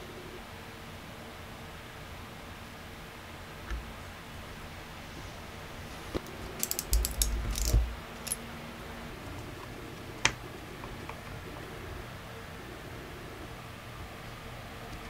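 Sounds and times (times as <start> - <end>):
crimping tool clicking: 6.2 - 8.4.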